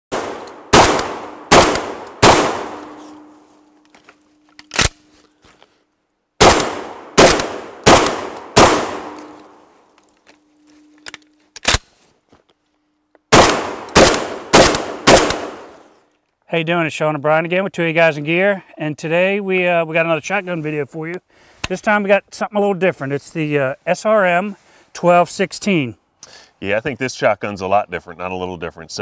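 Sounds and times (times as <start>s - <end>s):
shotgun shots with echo: 0.1s - 3.1s, 6.4s - 9.4s, 13.3s - 15.8s.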